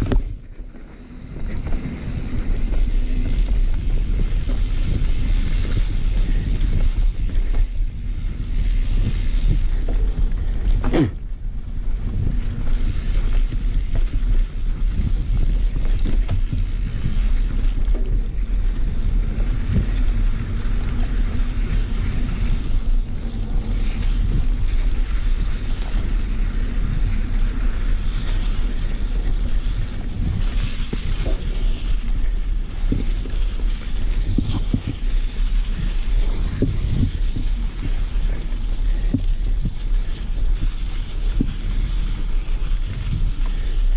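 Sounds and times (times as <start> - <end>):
bike knocks and rattles: 0.0 - 43.9
bike tyres rolling on dirt: 0.0 - 43.9
wind rushing on microphone: 0.0 - 43.9.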